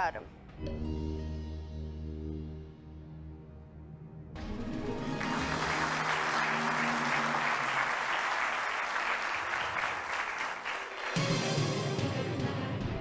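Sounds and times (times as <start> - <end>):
game show music: 4.4 - 13.0
audience applauding: 4.7 - 11.5.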